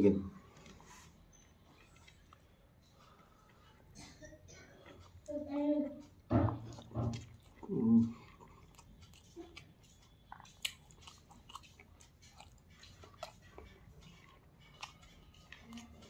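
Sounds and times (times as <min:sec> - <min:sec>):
person chewing food: 0:01.6 - 0:16.0.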